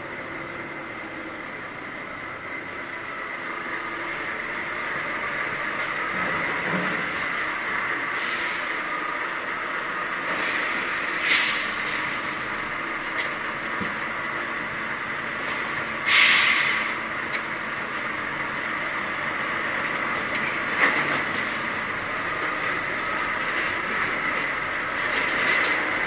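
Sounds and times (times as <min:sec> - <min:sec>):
diesel engine running: 0:00.0 - 0:26.0
air brake hisses: 0:08.1 - 0:08.8, 0:10.3 - 0:12.5, 0:16.0 - 0:17.0, 0:21.3 - 0:21.8.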